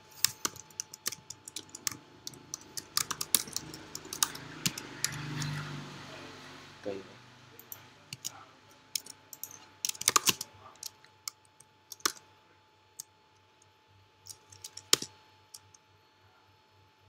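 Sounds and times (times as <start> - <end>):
typing on computer keyboard: 0.0 - 5.6, 7.6 - 12.2, 14.3 - 15.8
faint hum: 0.0 - 17.0.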